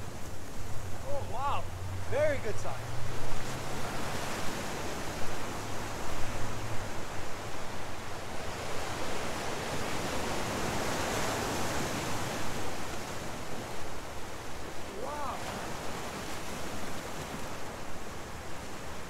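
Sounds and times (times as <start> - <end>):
ocean surf on rocky shore: 0.0 - 19.0.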